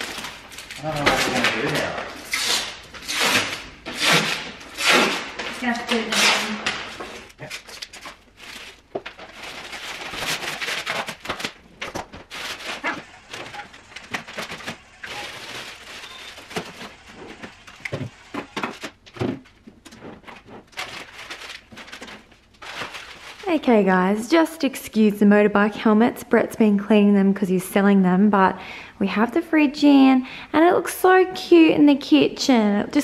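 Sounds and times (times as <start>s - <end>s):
plastic packaging crinkling: 0.0s - 3.6s, 5.1s - 23.9s.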